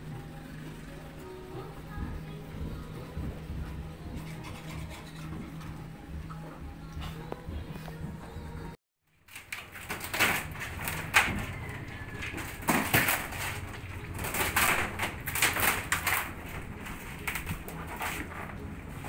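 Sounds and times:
fibreglass hull scraping and cracking: 9.3 - 19.0.

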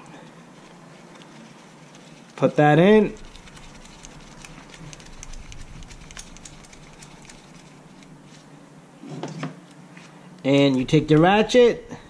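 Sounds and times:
faint small clicks and rustling: 0.2 - 8.4.

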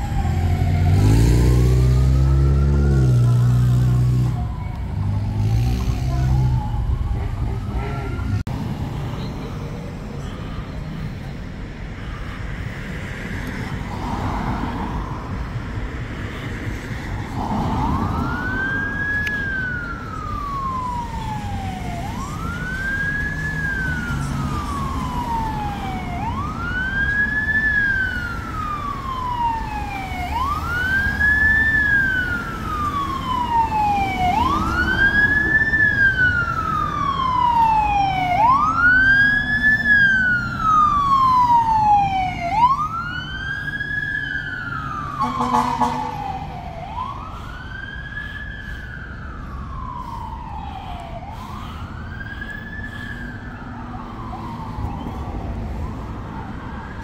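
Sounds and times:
fire truck siren wailing: 0.0 - 8.6, 17.1 - 57.0
engine and road rumble: 0.0 - 57.0.

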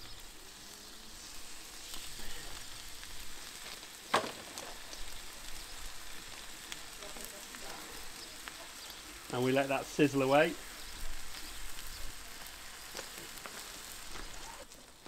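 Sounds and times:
steaks sizzling in a frying pan: 0.0 - 15.0
sharp crack: 3.6 - 5.0.

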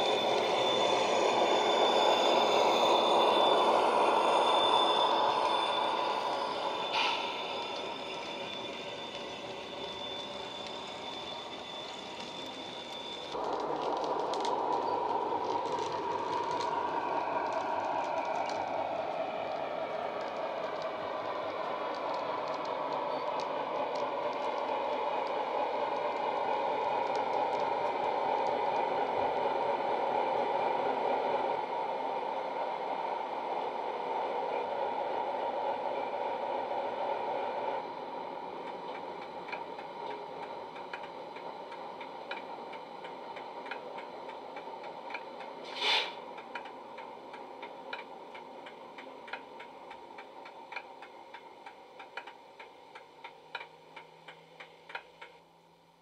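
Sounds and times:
diesel locomotive engine running: 0.0 - 55.7
short hiss: 45.6 - 46.2
regular ticking: 46.3 - 55.4.

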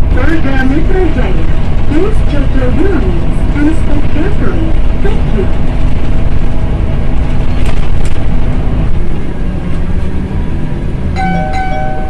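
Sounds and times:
bus engine and road rumble: 0.0 - 12.0
short high tone: 11.2 - 12.0.

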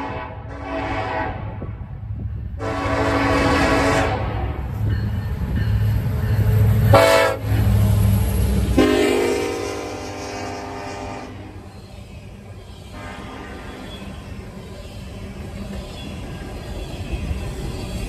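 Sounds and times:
locomotive horn blasts: 0.0 - 1.6, 2.6 - 4.6, 6.9 - 7.5, 8.8 - 11.6, 12.9 - 14.0
train rumbling past: 0.0 - 18.0.

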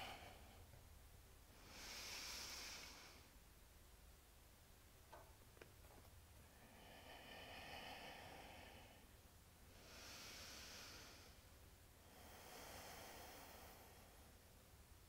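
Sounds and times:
person breathing slowly: 0.0 - 0.8, 1.5 - 3.4, 6.4 - 14.6.

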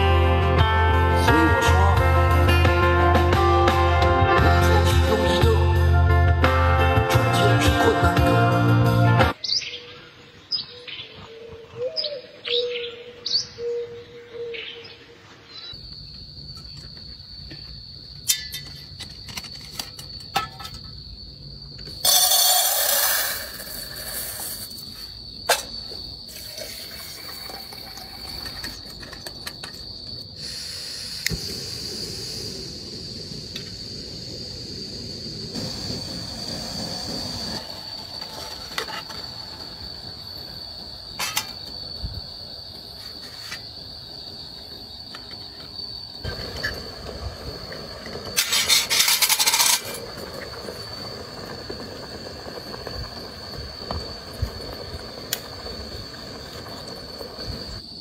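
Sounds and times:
crickets chirring: 0.0 - 58.0
loud hiss: 22.0 - 25.3, 30.3 - 38.5, 46.2 - 57.8
gas stove burning: 25.6 - 42.9, 46.2 - 57.8.

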